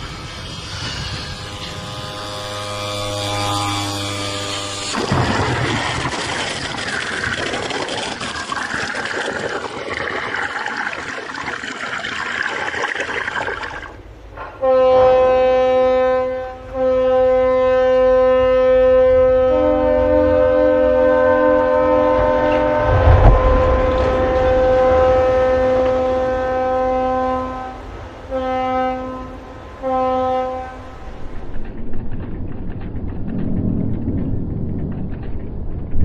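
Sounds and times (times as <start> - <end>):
ship's horn blast: 1.2 - 5.3, 14.4 - 31.2
water rushing and splashing: 3.9 - 14.3, 22.6 - 29.9.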